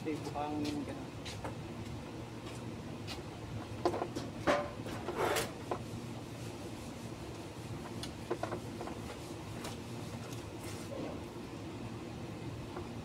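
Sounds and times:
workshop background hum: 0:00.0 - 0:13.0
short scrapes and clicks: 0:05.0 - 0:05.5.

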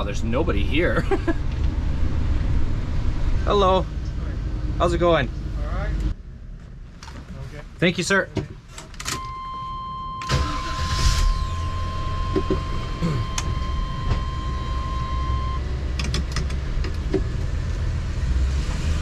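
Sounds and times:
motorhome engine and road rumble: 0:00.0 - 0:19.0
high electronic warning tone: 0:09.2 - 0:15.6.

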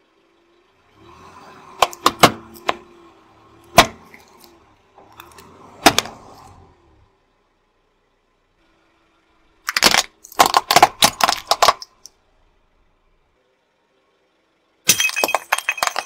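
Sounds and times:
low rumble of rolling car: 0:00.0 - 0:16.0
plastic candles cracking under tyre: 0:09.6 - 0:12.1.

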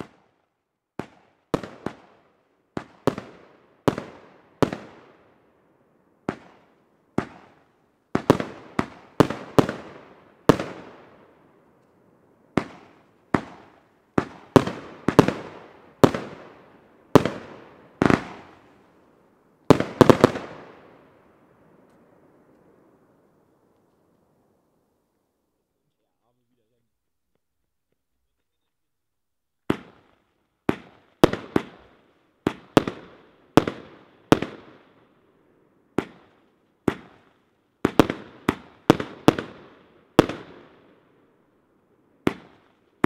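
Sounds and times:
firework bangs: 0:06.2 - 0:11.8, 0:12.5 - 0:19.0, 0:19.6 - 0:22.0, 0:29.6 - 0:35.0, 0:35.9 - 0:41.0.

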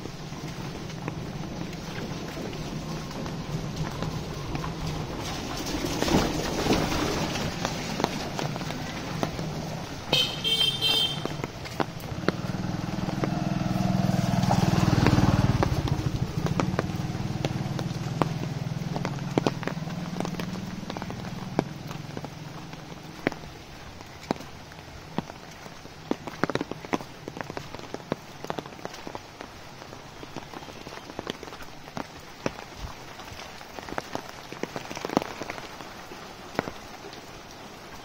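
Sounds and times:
vehicle engine hum: 0:00.0 - 0:23.8.

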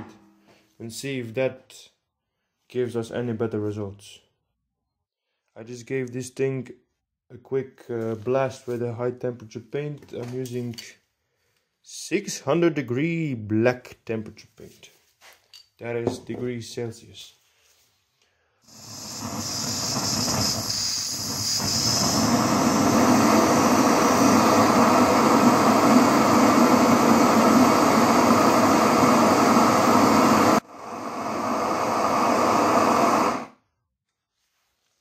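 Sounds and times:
gas torch flame rushing: 0:18.7 - 0:33.6.

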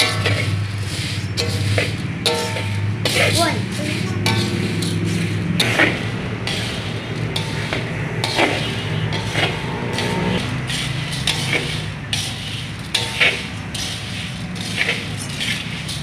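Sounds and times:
coffee beans scraping in a pan: 0:00.0 - 0:16.0
steady low hum: 0:00.0 - 0:16.0.

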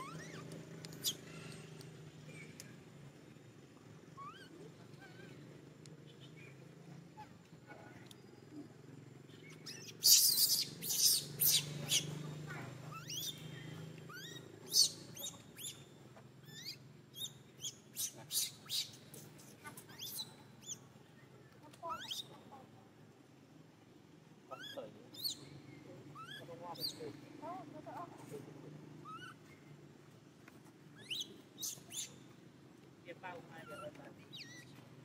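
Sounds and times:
animal chirping: 0:00.0 - 0:01.6, 0:04.1 - 0:05.4, 0:09.3 - 0:20.8, 0:21.8 - 0:22.6, 0:24.5 - 0:28.3, 0:28.9 - 0:29.7, 0:31.0 - 0:32.3, 0:33.3 - 0:34.8.

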